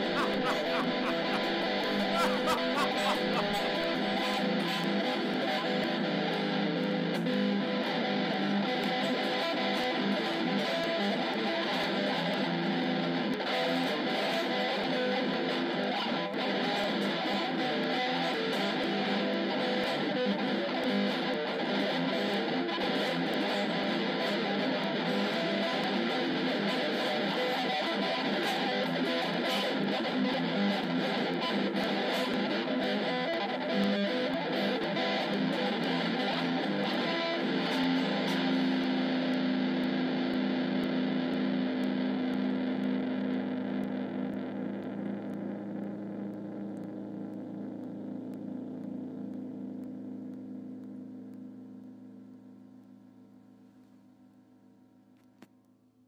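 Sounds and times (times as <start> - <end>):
jazz guitar music: 0.0 - 11.6, 22.4 - 40.3.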